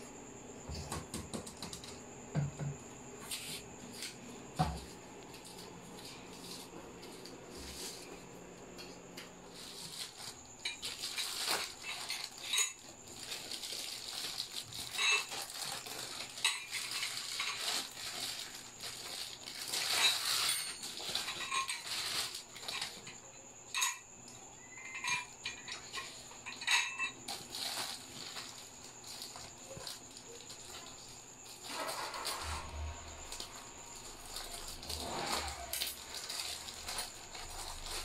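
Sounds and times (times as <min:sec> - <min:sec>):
plastic wrapping crinkling: 0:09.5 - 0:23.2, 0:26.6 - 0:32.6, 0:33.2 - 0:38.0.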